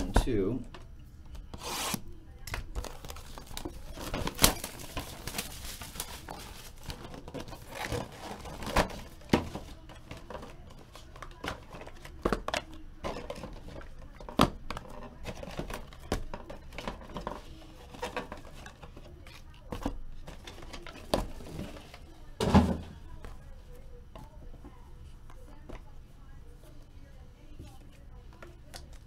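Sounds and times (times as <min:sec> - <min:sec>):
plastic wrapping crinkling: 0:02.7 - 0:12.1.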